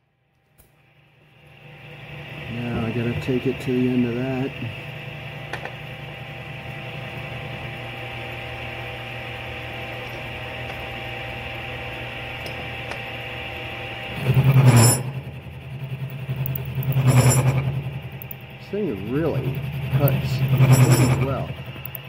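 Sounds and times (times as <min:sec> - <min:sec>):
milling machine cutting steel: 0:07.1 - 0:22.0.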